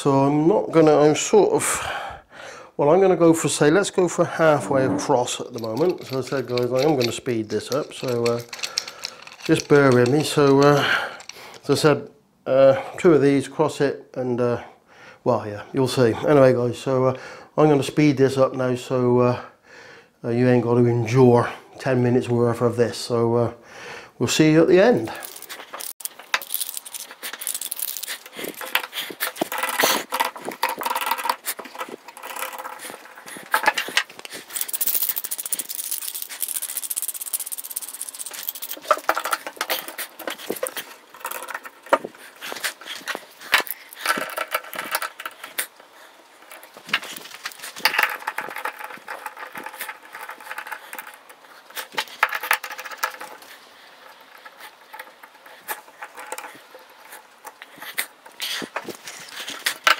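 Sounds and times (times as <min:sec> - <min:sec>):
metal clamps rattling and clinking: 0:05.1 - 0:11.7, 0:24.8 - 0:59.9.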